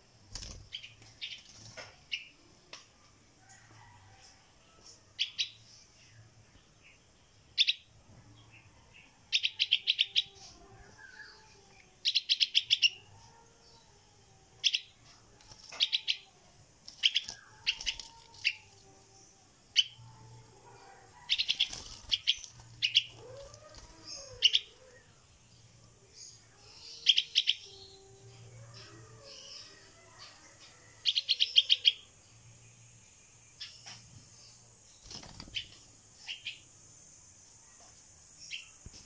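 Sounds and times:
fledgling bird chirping: 7.6s - 13.9s, 14.5s - 25.3s, 26.2s - 32.1s.

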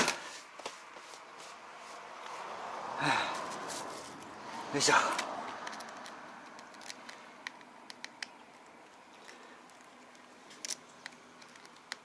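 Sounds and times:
clicks and scrapes from handling: 5.1s - 12.0s.

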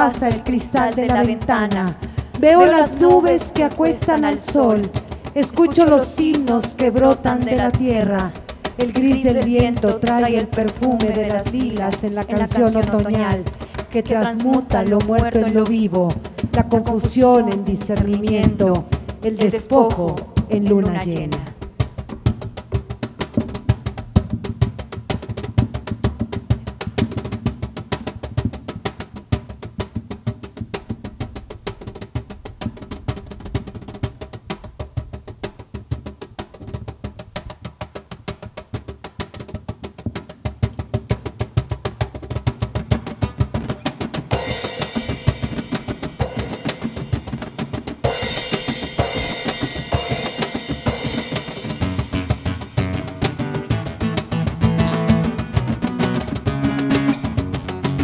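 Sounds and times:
conga drums: 0.0s - 58.0s
higher louder sounds: 43.2s - 58.0s
classical guitar strummed: 50.4s - 58.0s.

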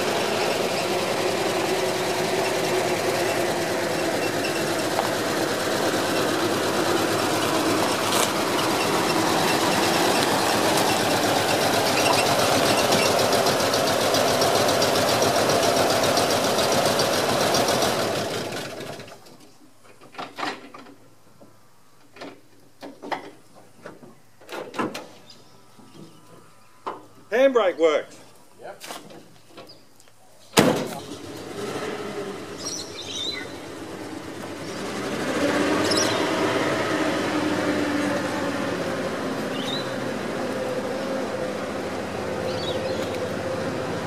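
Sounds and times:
truck engine running: 0.0s - 19.2s, 30.8s - 44.0s.

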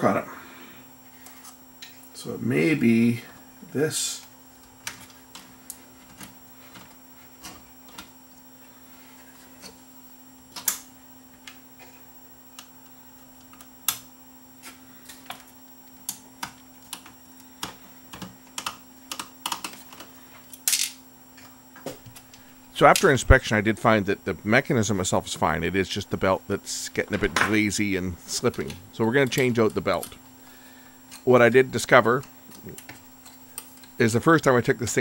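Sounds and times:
faint steady hum: 0.0s - 35.0s
small parts clicking and tapping: 16.0s - 21.5s.

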